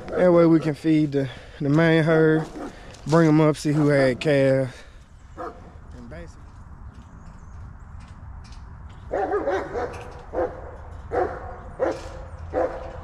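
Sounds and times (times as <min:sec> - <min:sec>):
dog barking: 0:05.4 - 0:05.6, 0:09.1 - 0:13.0.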